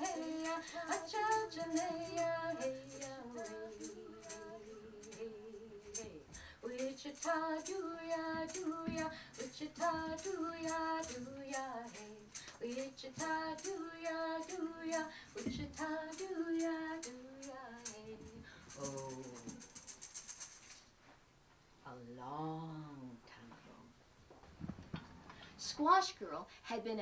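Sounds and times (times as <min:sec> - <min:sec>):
woman and children singing: 0:00.0 - 0:19.6
sharp rhythmic clicks: 0:00.0 - 0:20.8.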